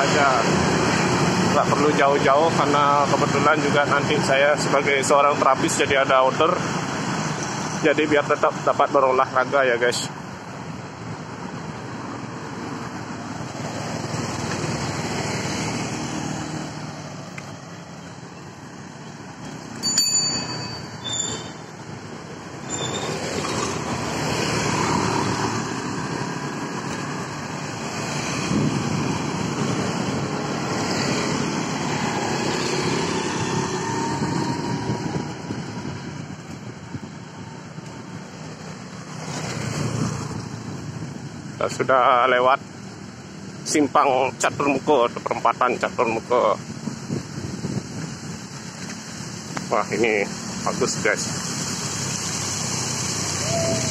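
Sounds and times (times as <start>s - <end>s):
motorbikes and cars passing: 0.0s - 53.9s
high ringing clink: 19.8s - 21.6s.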